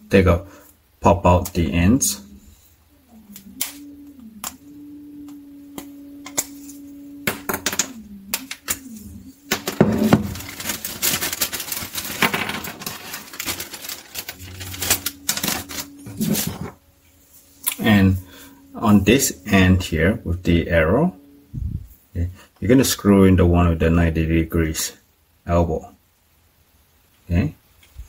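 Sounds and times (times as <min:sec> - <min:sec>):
steady low tone: 0:00.0 - 0:12.2, 0:12.8 - 0:24.7
plastic parts clicking and rustling: 0:09.5 - 0:16.8.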